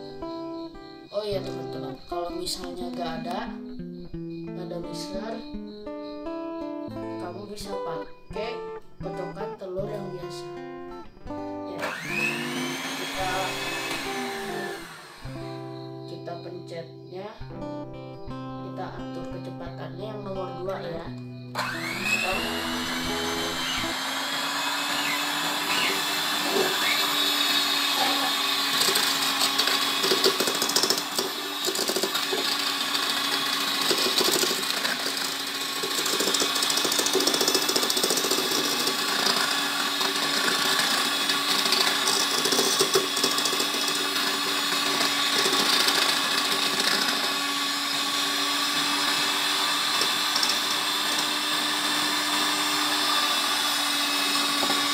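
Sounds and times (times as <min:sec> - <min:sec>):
mixer beaters clicking: 0:11.8 - 0:15.2, 0:21.6 - 0:54.9
electric hand mixer motor whine: 0:11.8 - 0:15.9, 0:21.4 - 0:54.9.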